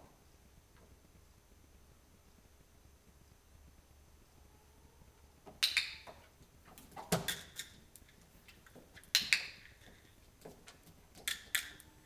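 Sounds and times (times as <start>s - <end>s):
training clicker double clicks: 5.6s - 6.1s.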